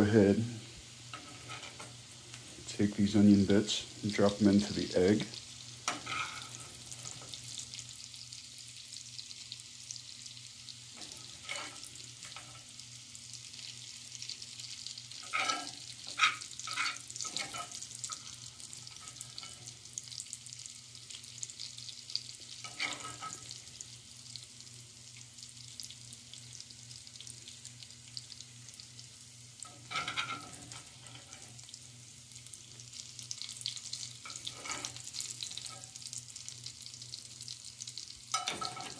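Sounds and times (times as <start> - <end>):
onion sizzling in fat: 0.0 - 38.9
metal spoon clinking and scraping: 5.9 - 6.7, 15.2 - 17.8, 29.7 - 31.4, 34.3 - 35.0, 38.4 - 38.9.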